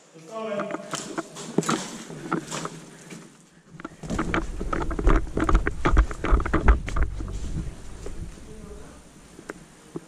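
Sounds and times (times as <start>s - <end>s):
gear rattling: 3.7s - 8.5s.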